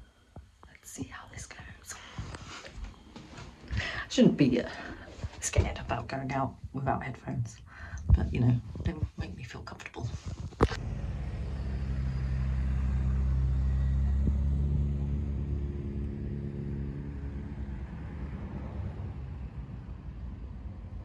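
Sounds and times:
vehicle engine passing by: 10.7s - 21.0s.

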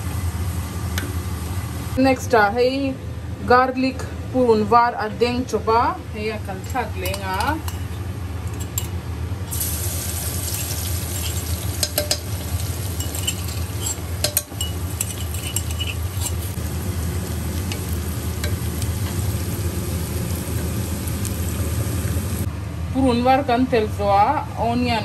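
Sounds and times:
garlic sizzling in hot oil: 9.5s - 22.5s.

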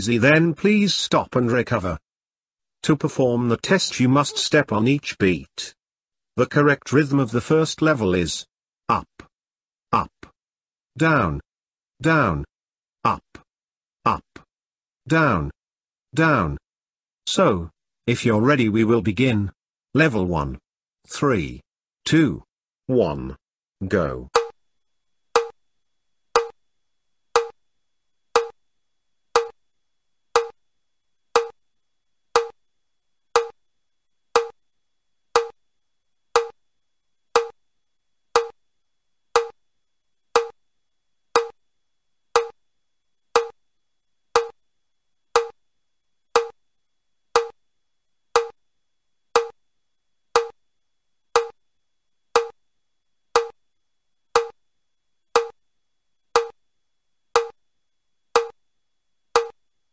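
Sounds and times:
metronome clicking: 35.4s - 35.6s, 36.4s - 36.6s, 38.4s - 38.6s, 39.4s - 39.6s, 40.4s - 40.6s, 44.4s - 44.6s, 45.4s - 45.6s, 46.4s - 46.6s, 47.4s - 47.6s, 48.4s - 48.6s, 49.4s - 49.6s, 50.4s - 50.6s, 51.4s - 51.6s, 52.4s - 52.6s, 53.4s - 53.6s, 54.4s - 54.6s, 55.4s - 55.6s, 56.4s - 56.6s, 57.4s - 57.6s, 58.4s - 58.6s, 59.4s - 59.6s.

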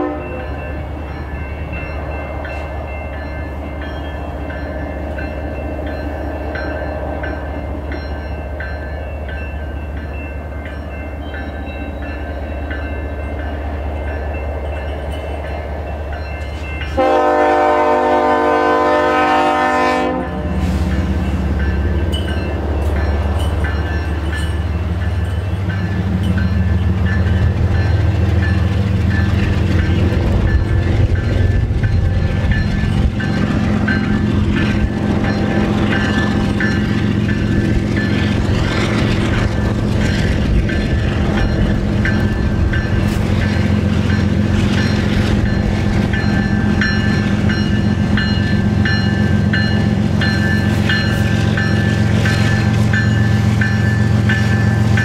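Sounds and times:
diesel locomotive engine rumble: 0.0s - 55.0s
train rolling noise: 0.0s - 55.0s.

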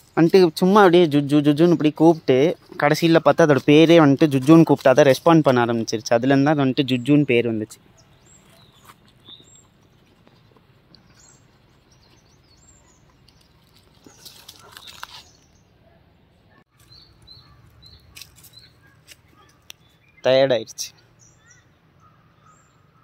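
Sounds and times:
small bird chirping: 7.0s - 15.8s, 16.5s - 23.0s.

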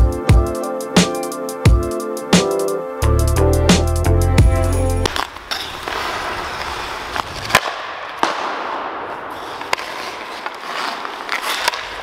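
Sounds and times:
hockey stick and puck clacks: 5.0s - 12.0s
skates scraping on ice: 5.0s - 12.0s.

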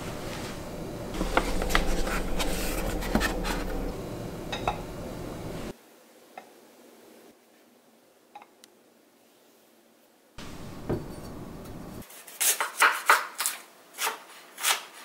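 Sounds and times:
steady low hum: 0.0s - 5.7s, 10.4s - 12.0s.

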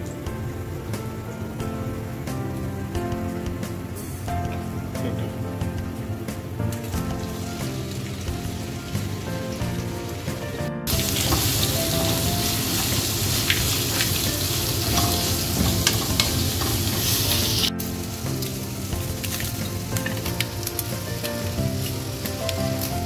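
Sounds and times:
background music: 0.0s - 23.0s
onions sizzling in hot oil: 6.6s - 23.0s.

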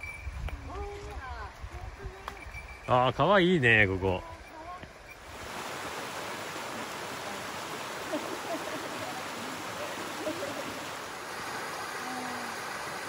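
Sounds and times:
stream rushing over rocks: 5.2s - 13.0s.

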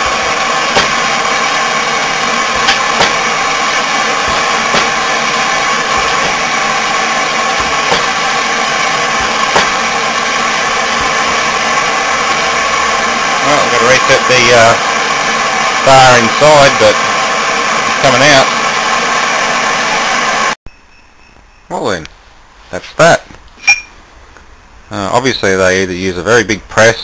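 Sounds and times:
loud hissing roar: 0.0s - 20.6s.

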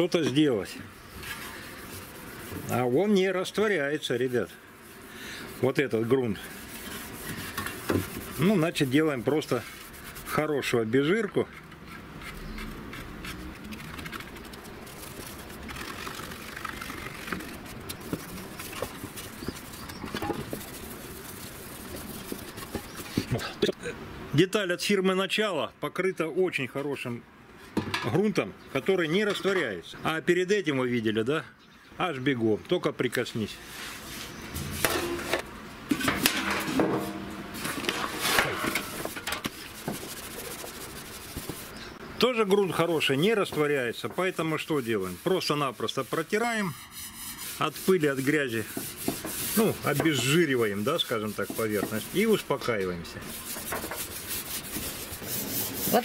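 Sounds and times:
rag scrubbing metal panel: 1.2s - 10.8s, 11.8s - 23.3s, 34.0s - 41.8s, 42.7s - 56.0s
rag scraping metal panel: 34.6s - 41.7s, 43.5s - 56.0s.

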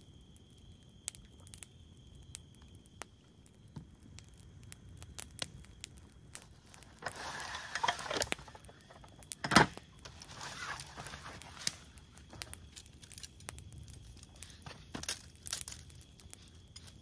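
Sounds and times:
rustling and crinkling: 6.3s - 17.0s.

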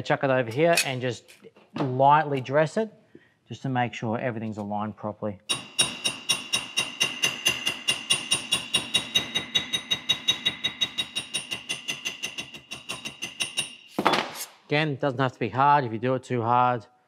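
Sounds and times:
hammer tapping metal sheet: 5.5s - 14.0s.

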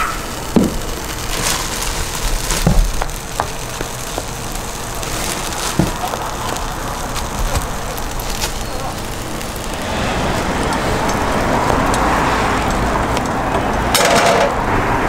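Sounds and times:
butter sizzling on griddle: 0.0s - 15.0s
bread thumping on griddle: 0.6s - 0.8s, 2.4s - 4.4s, 5.6s - 6.6s.

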